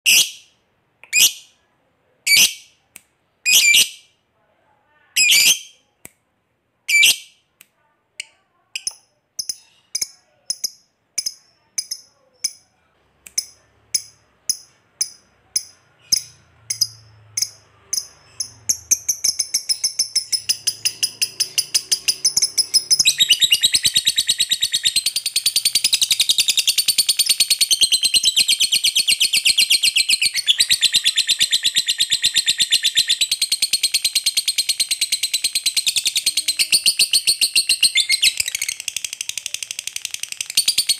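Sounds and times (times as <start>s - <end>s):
lovebird chirping: 3.4s - 4.1s, 5.1s - 5.8s, 6.9s - 7.4s, 8.7s - 12.7s, 13.3s - 40.9s
lovebird chattering trill: 13.4s - 40.9s.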